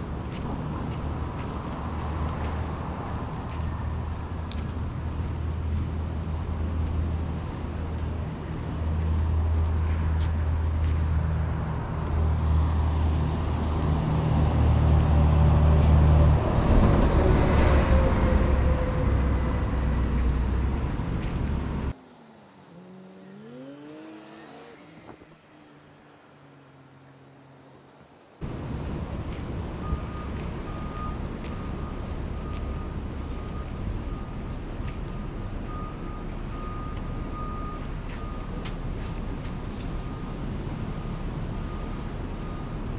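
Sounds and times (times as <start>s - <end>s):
car passing with low rumble: 0.0s - 42.9s
fainter engine rising in pitch: 22.1s - 27.7s.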